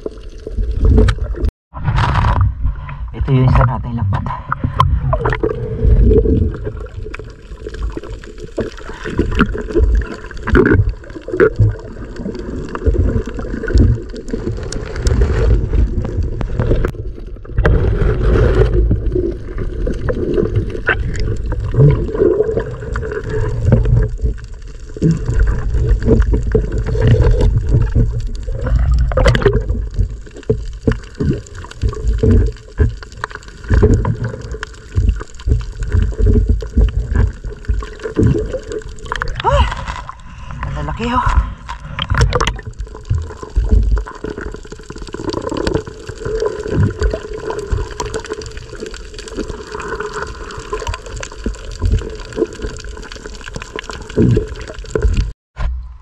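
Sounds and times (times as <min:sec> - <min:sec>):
muffled underwater sloshing: 0:00.0 - 0:56.0.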